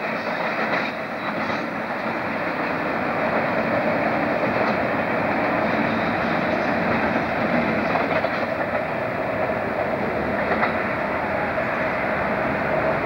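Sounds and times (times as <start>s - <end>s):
diesel locomotive passing with train: 0.0s - 13.0s.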